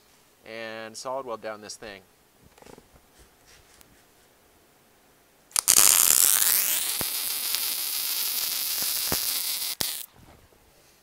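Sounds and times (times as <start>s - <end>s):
welding arc hissing and crackling: 5.5s - 10.1s.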